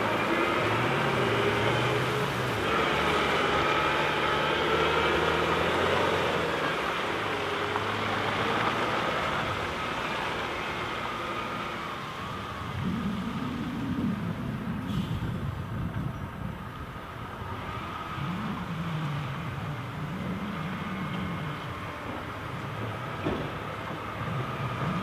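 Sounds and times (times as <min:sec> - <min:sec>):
diesel truck engine driving off: 0:00.0 - 0:25.0.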